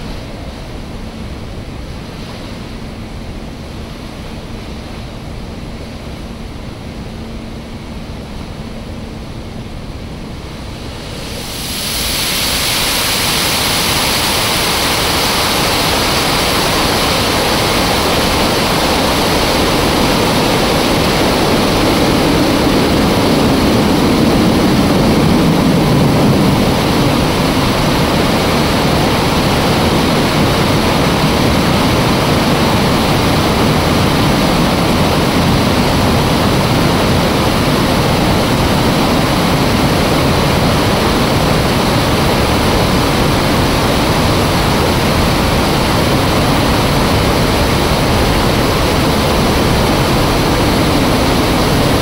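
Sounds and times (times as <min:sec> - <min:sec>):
faint steady hum: 0:00.0 - 0:52.0
water rushing through spillway: 0:10.7 - 0:52.0.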